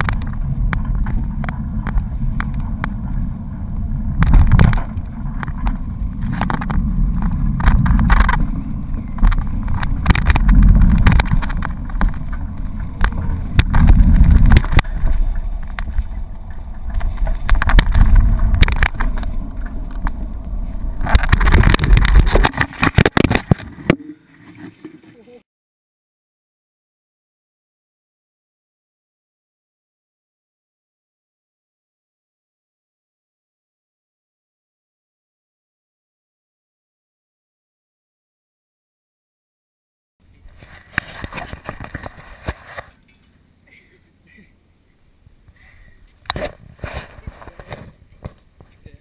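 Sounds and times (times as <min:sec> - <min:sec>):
wind buffeting camera: 0:00.0 - 0:24.0, 0:40.3 - 0:43.0, 0:46.0 - 0:49.0
bike rattling over bumps: 0:00.0 - 0:25.0, 0:40.2 - 0:43.4
bike crashing clatter: 0:04.1 - 0:24.0.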